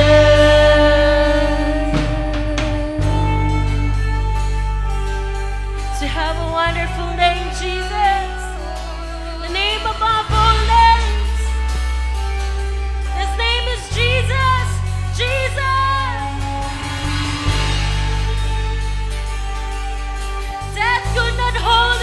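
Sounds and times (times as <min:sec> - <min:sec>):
woman singing into a microphone: 0:00.0 - 0:04.7, 0:05.9 - 0:11.7, 0:13.0 - 0:16.7, 0:20.6 - 0:22.0
deep held bass notes: 0:00.0 - 0:22.0
strummed acoustic guitar: 0:00.0 - 0:22.0.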